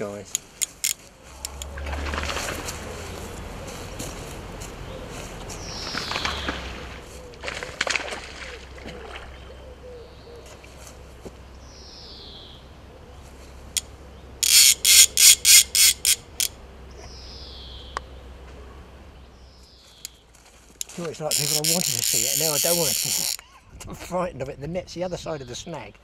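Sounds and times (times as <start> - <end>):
fishing reel ratchet buzzing: 0.3 - 1.8, 14.4 - 16.6, 20.8 - 23.4.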